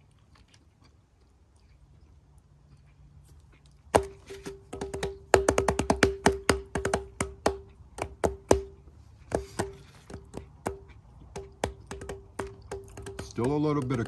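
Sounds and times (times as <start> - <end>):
wood-block tapping music: 4.0 - 14.0.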